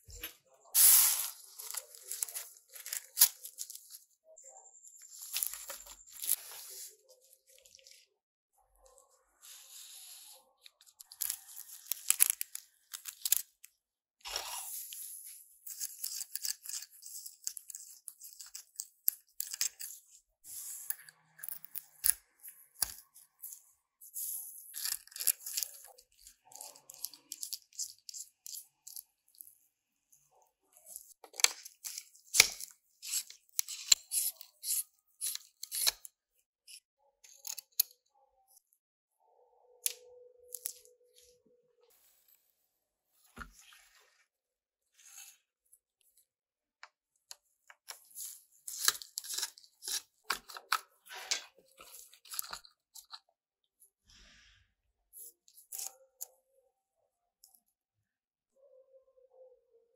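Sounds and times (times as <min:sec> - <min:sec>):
screwdriver scraping a screw: 0:15.6 - 0:20.0, 0:31.4 - 0:36.1, 0:48.7 - 0:50.8.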